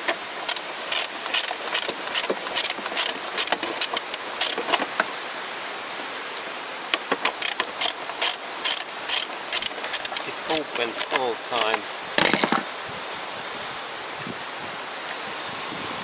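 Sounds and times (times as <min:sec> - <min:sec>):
steady background hiss: 0:00.0 - 0:16.0
socket ratchet clicking: 0:00.4 - 0:04.7, 0:07.3 - 0:10.3.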